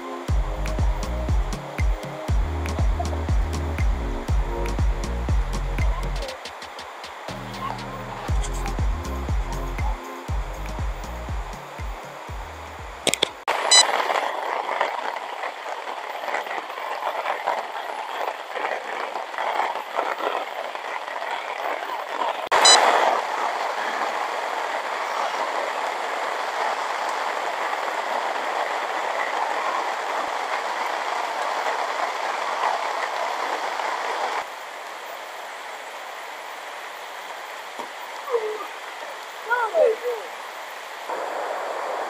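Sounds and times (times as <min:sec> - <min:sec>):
heavy rain on tent: 0:00.0 - 0:42.0
sharp click: 0:13.1 - 0:13.4.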